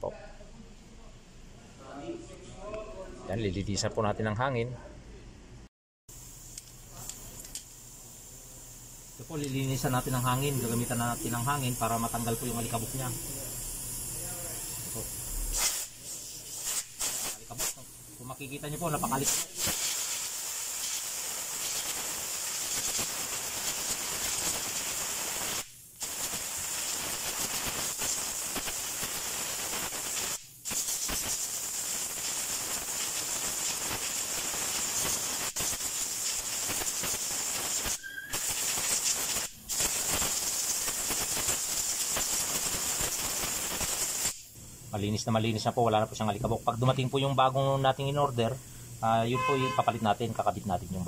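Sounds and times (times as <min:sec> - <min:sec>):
compressed air blow gun hissing: 0:06.1 - 0:44.8.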